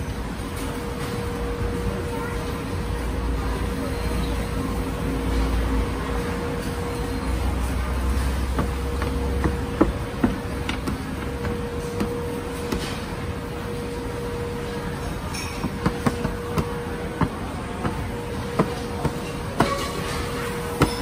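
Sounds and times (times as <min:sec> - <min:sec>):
constant hum: 0:00.0 - 0:21.0.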